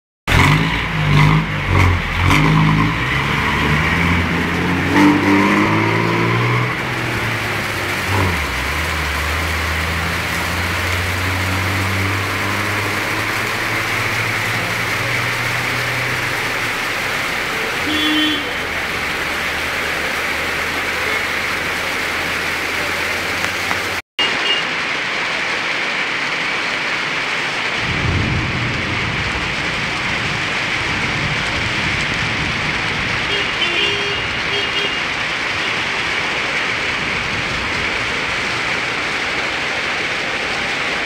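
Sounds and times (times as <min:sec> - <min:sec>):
heavy rain on road and roofs: 0:00.3 - 0:41.0.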